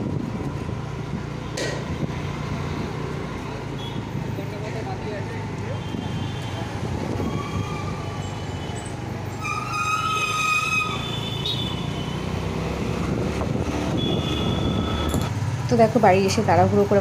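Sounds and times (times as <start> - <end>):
street traffic rumble: 0.0 - 17.0
vehicle horn honking: 10.0 - 12.2, 13.9 - 15.3.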